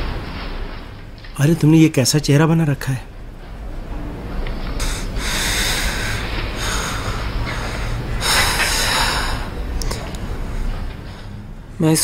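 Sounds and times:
low steady hum: 0.0s - 12.0s
man breathing out heavily: 4.8s - 9.6s.

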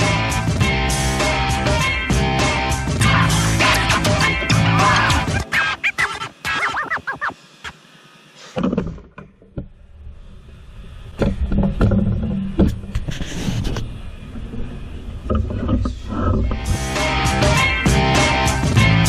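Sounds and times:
low rumble: 9.8s - 18.1s.

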